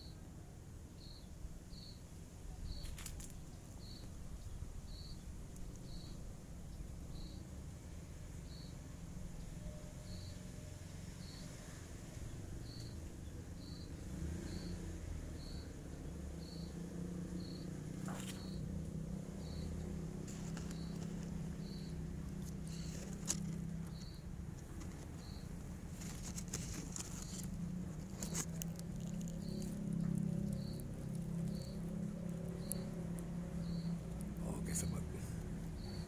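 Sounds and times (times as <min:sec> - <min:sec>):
low steady rumble: 0:00.0 - 0:36.0
insect chirping: 0:01.0 - 0:02.0, 0:02.7 - 0:03.1, 0:03.8 - 0:04.1, 0:04.9 - 0:05.2, 0:05.8 - 0:06.2, 0:07.1 - 0:07.5, 0:08.4 - 0:08.8, 0:10.0 - 0:10.5, 0:11.2 - 0:11.6, 0:12.6 - 0:13.0, 0:13.6 - 0:36.0
twigs and dry grass rustling: 0:02.7 - 0:04.2, 0:18.0 - 0:18.7, 0:19.4 - 0:36.0.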